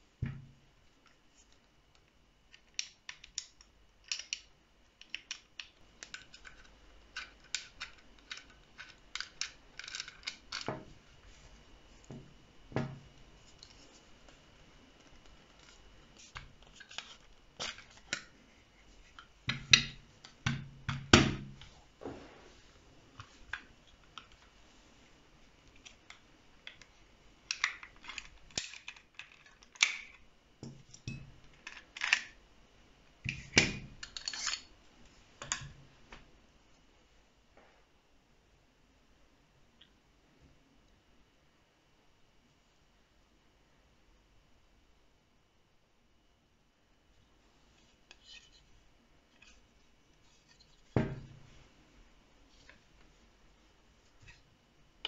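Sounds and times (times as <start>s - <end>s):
pistol parts clicking and scraping: 5.0s - 10.7s, 34.0s - 34.7s.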